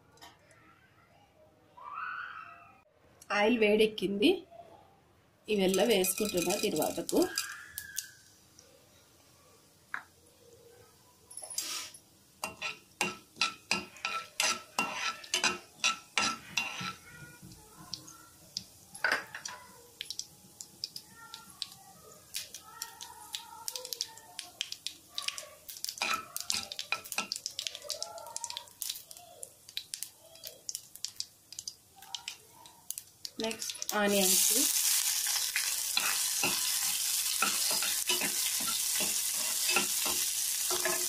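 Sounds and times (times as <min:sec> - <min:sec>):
seeds popping in hot oil: 0:05.5 - 0:08.7, 0:12.4 - 0:41.0
metal spoon knocking a pan: 0:05.7 - 0:07.4, 0:12.4 - 0:17.0, 0:37.4 - 0:41.0.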